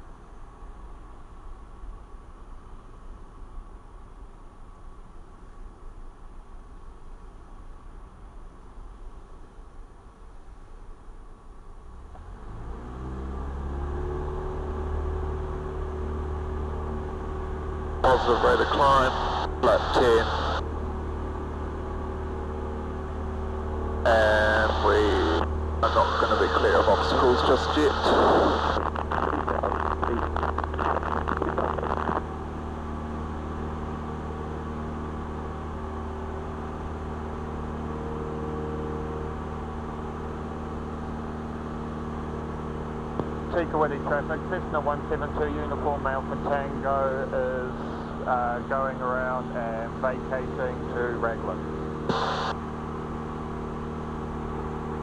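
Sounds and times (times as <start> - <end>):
airplane engine at full power: 12.2 - 55.0
crackling hiss: 18.0 - 20.6, 24.0 - 32.2, 52.1 - 52.6.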